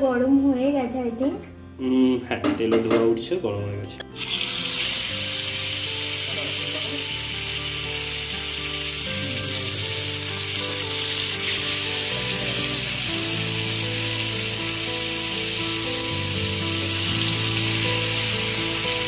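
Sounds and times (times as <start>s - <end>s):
background music: 0.0s - 19.0s
fish sizzling in hot oil: 4.1s - 19.0s.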